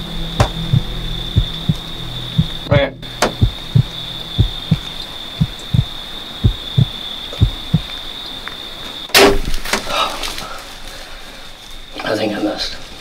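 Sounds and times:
heartbeat thumps: 0.0 - 7.9
steady high-pitched tone: 0.0 - 7.9
loud snap: 3.2 - 3.6, 9.1 - 9.8.

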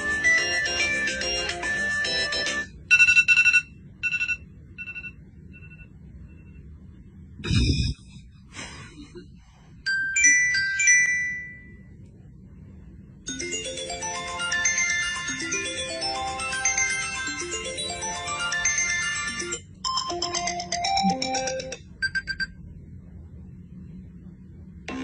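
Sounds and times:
smartphone ringtone melody: 0.0 - 5.8, 13.3 - 22.4.

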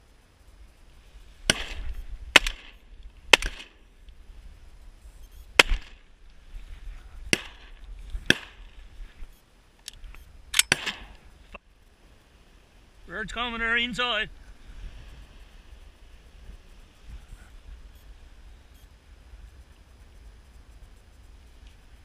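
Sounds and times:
shotgun shots with echo: 1.5 - 3.8, 5.6 - 6.0, 7.3 - 8.7, 10.6 - 11.2.

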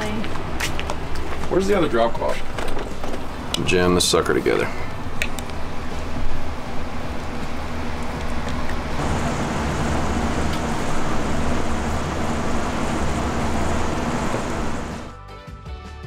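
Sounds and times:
low rumble and hiss: 8.6 - 15.1.

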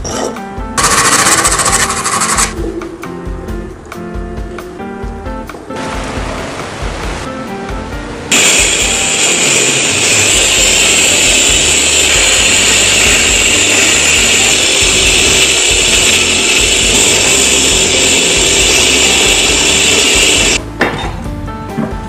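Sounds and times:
rotary tool grinding metal: 0.1 - 2.6, 8.3 - 20.6.

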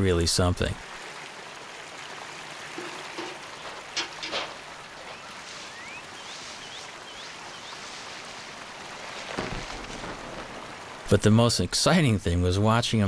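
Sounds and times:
running water: 0.0 - 13.0
eagle high whistled calls: 5.0 - 7.9.

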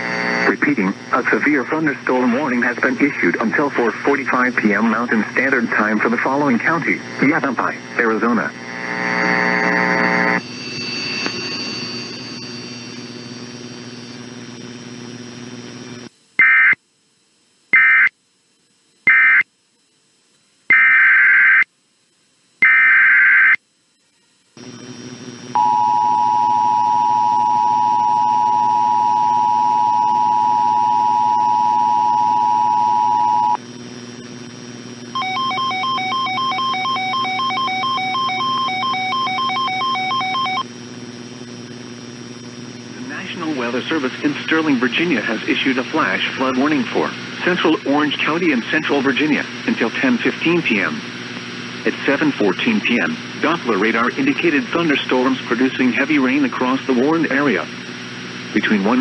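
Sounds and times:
harsh digital data bursts: 0.0 - 13.6, 16.4 - 16.8, 17.7 - 18.2, 19.0 - 19.5, 20.7 - 21.7, 22.6 - 23.6, 35.1 - 40.7
low hum: 4.8 - 17.6, 23.8 - 50.2
two-tone attention signal: 25.6 - 33.6, 35.2 - 40.6
rapid beeping tones: 35.2 - 40.6.

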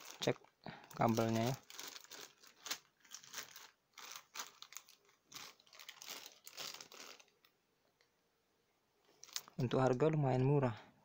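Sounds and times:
plastic bag crinkling: 0.0 - 7.6, 9.1 - 9.7.

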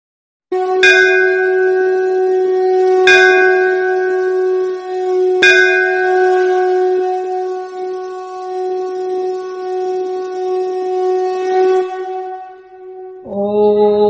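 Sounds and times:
horn-like drone: 0.5 - 14.0
bell struck and ringing: 0.8 - 8.4.

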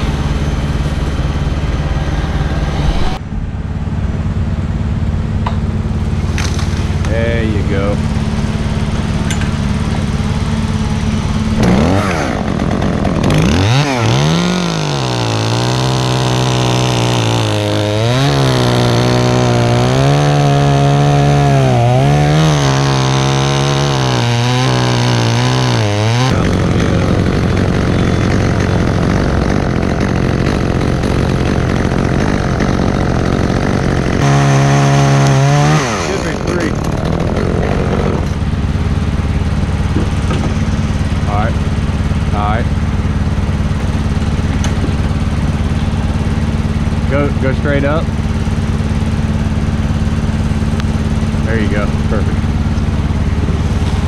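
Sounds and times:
chainsaw engine revving: 6.1 - 54.0.

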